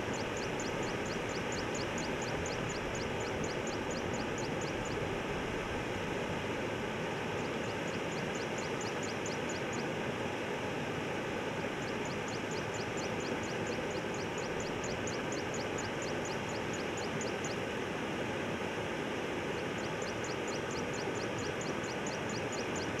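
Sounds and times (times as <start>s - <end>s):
rapid high-pitched ticking call: 0.0s - 5.0s, 7.4s - 9.9s, 11.6s - 17.7s, 19.6s - 23.0s.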